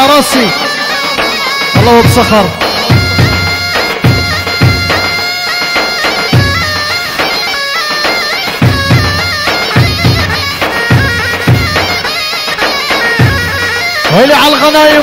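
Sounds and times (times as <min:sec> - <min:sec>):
deep drum beats: 0:00.0 - 0:14.6
reed pipe dance melody: 0:00.0 - 0:15.0.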